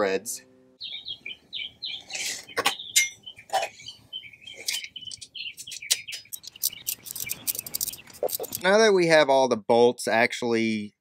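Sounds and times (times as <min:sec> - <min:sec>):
songbirds chirping: 0:00.0 - 0:09.1
metallic clicks of bolts: 0:04.8 - 0:08.6.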